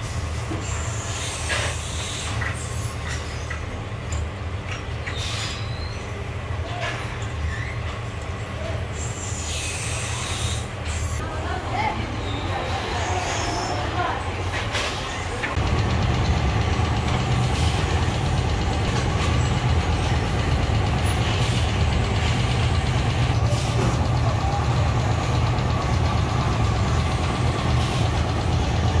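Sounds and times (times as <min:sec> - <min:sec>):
machinery low mechanical drone: 0:15.6 - 0:29.0.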